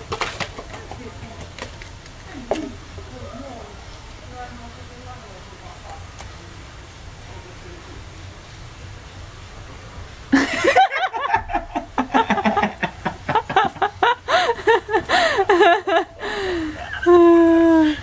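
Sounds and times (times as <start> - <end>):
person laughing hard: 10.4 - 18.0.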